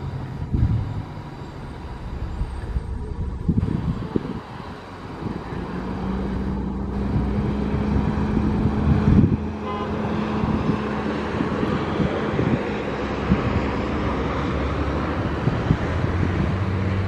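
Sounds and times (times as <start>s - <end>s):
heavy vehicle rumbling: 0.0s - 17.0s
wind on microphone: 0.3s - 17.0s.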